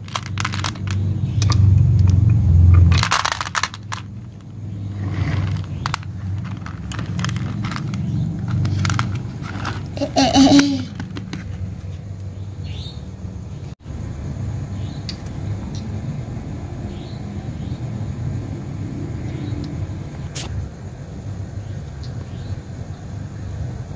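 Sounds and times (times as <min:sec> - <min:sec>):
glass marbles clicking on plastic: 0:00.0 - 0:01.6
plastic toy trucks handled: 0:00.0 - 0:01.6, 0:02.8 - 0:11.7.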